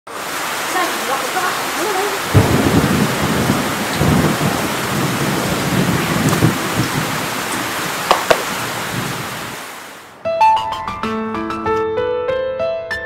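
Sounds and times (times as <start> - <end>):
heavy rain pouring: 0.1 - 10.2
rolling thunder rumbles: 2.2 - 9.7.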